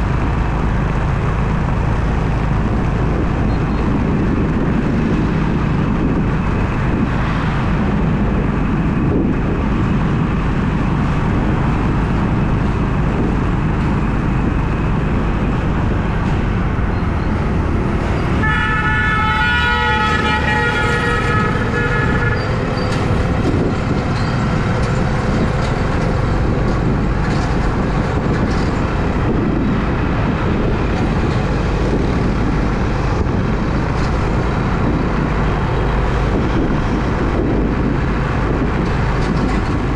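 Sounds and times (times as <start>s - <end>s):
car driving rumble: 0.0s - 39.9s
car horn: 18.3s - 23.0s.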